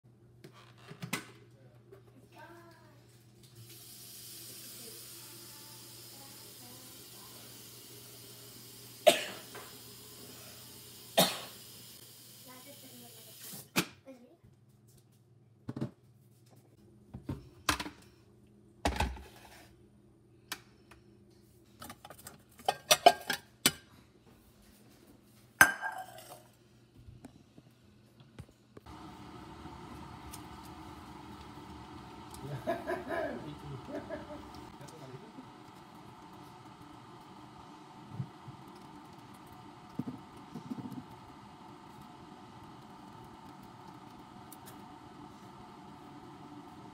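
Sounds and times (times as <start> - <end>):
tap water running into kettle: 3.5 - 13.7, 28.8 - 46.9
bowls clattering: 25.6 - 26.5.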